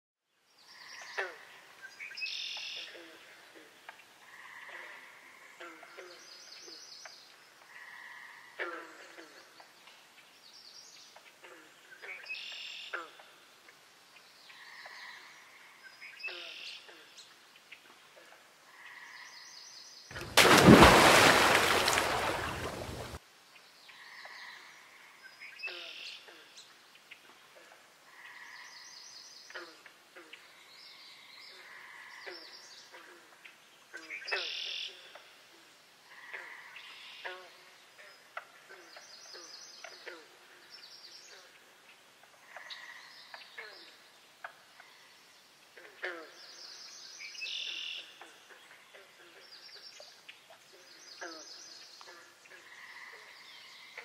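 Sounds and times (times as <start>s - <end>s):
faint birdsong: 28.1s - 54.0s.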